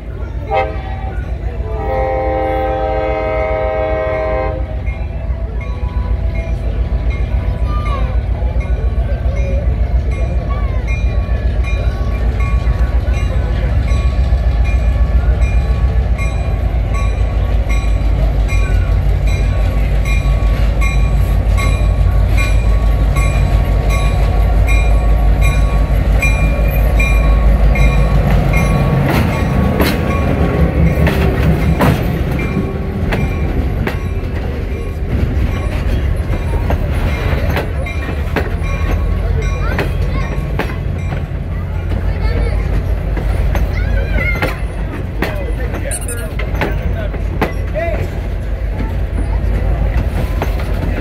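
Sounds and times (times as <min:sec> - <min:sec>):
locomotive engine rumbling: 0:00.0 - 0:51.0
locomotive bell ringing: 0:04.8 - 0:42.7, 0:45.6 - 0:47.7
train wheels clicking over rail joints: 0:10.9 - 0:51.0.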